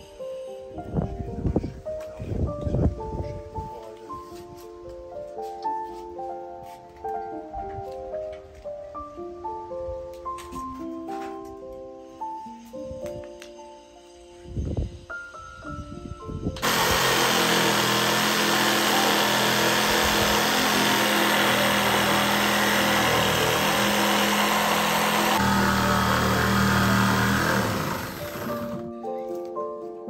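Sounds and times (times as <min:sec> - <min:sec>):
hedge trimmer motor running: 0:16.6 - 0:28.8.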